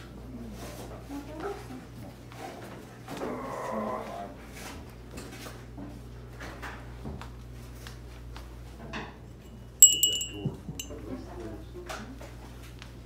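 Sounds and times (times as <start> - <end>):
steady low hum: 9.4 - 11.1.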